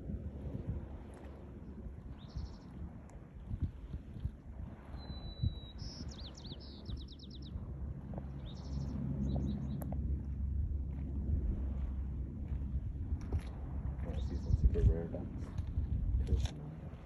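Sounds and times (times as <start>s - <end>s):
low steady rumble: 0.0s - 17.0s
small bird singing: 5.0s - 7.5s.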